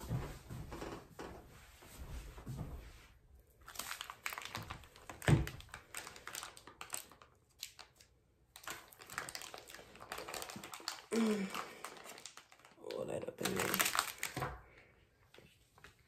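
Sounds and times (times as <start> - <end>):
plastic packaging rustling: 3.6 - 14.8.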